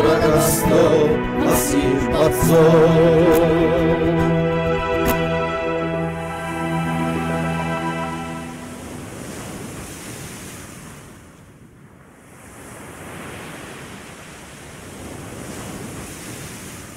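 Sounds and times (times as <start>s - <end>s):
song music: 0.0s - 9.2s.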